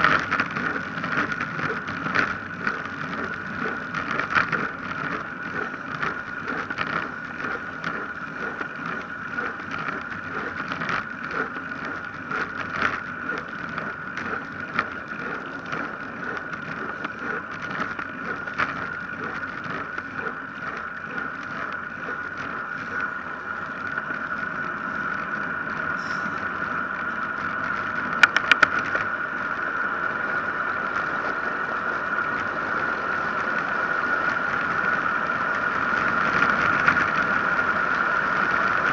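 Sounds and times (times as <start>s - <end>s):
bicycle rattles and knocks: 0.0s - 29.2s
constant whine: 0.0s - 38.9s.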